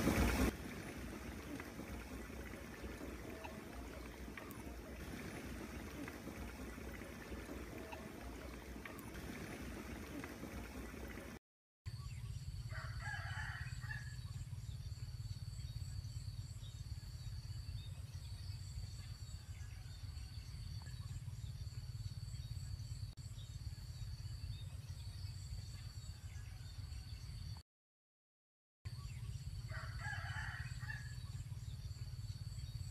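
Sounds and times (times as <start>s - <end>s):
water churning and bubbling: 0.0s - 11.4s
rooster crowing: 12.7s - 14.2s, 29.7s - 31.2s.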